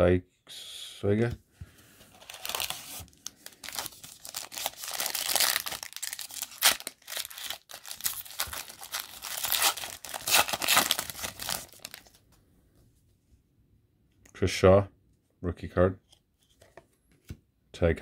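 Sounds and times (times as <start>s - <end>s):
foil wrapper crinkling and ripping: 2.2s - 12.2s.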